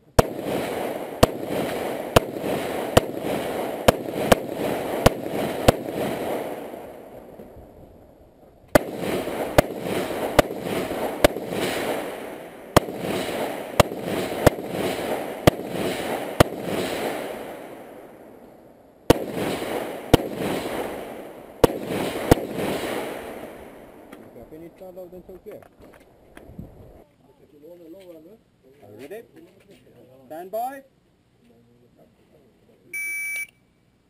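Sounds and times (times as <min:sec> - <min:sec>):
rifle shots with echo: 0:00.1 - 0:07.6, 0:08.8 - 0:18.4, 0:19.1 - 0:24.8.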